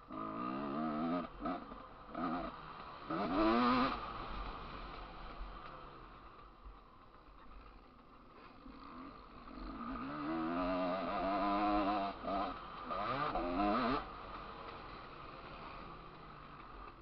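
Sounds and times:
motocross bike engine revving: 0.0 - 5.8, 8.4 - 17.0.

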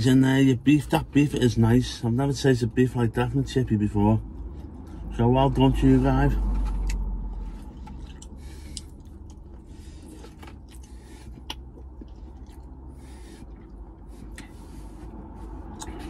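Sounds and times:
low steady hum: 0.0 - 16.0
person chewing food: 6.5 - 16.0.

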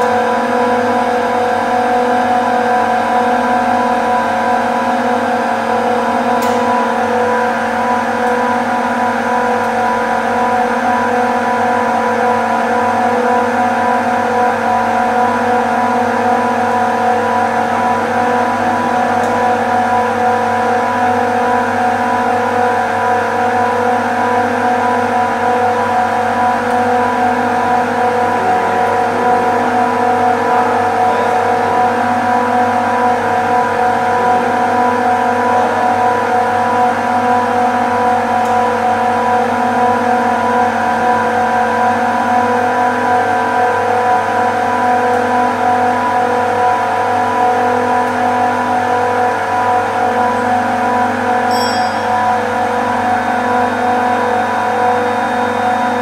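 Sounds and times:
compressors droning: 0.0 - 56.0.

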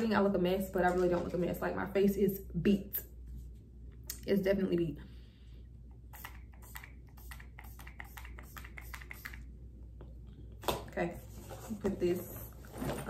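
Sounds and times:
spray bottle hissing sprays: 6.1 - 9.5.

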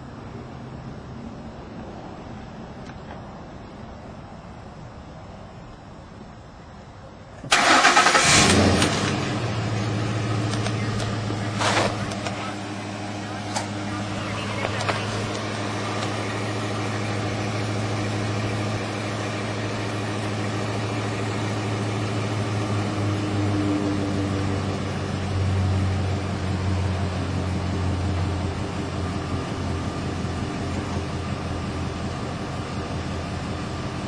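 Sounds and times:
truck engine idling: 7.5 - 34.0.

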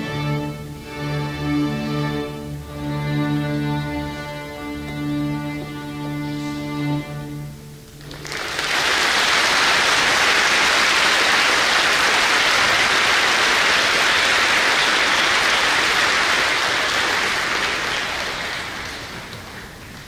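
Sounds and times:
string orchestra chord: 0.0 - 8.0
audience applauding: 8.0 - 20.0.

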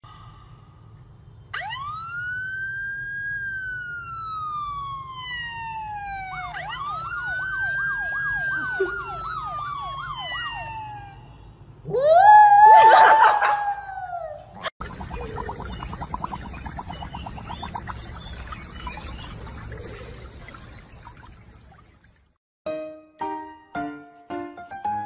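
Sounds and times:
electronic siren wailing: 1.5 - 14.0
siren yelp: 1.5 - 14.7.

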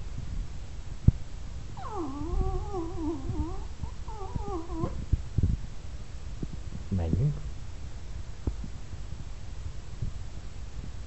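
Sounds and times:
dog whining: 1.8 - 5.1.

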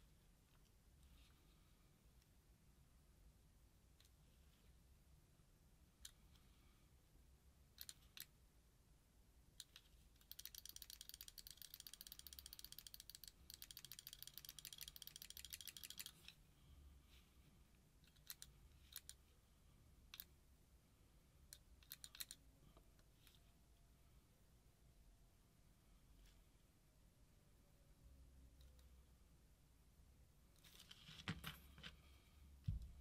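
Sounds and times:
rapid mechanical clicks: 9.6 - 16.2.

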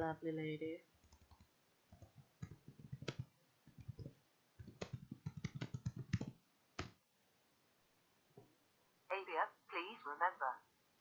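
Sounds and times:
computer keyboard typing: 1.0 - 7.0.

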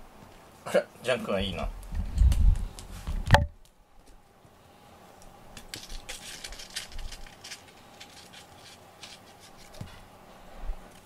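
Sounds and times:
crackly clicks and rustling: 5.2 - 10.0.

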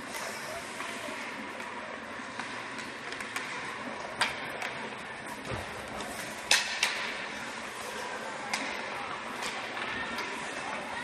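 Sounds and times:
hockey stick clacking puck: 1.6 - 7.3, 7.9 - 10.6
crowd murmur: 3.3 - 11.0.

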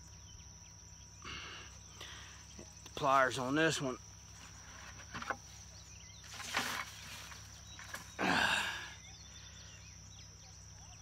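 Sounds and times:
rustling brushing noises: 4.3 - 8.2.

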